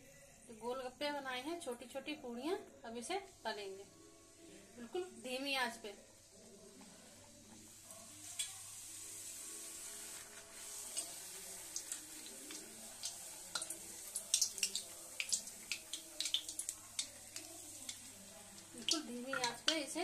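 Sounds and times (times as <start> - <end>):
frying in hot oil sizzle: 7.3 - 20.0
oil popping and clicking: 11.8 - 18.1, 18.8 - 19.9.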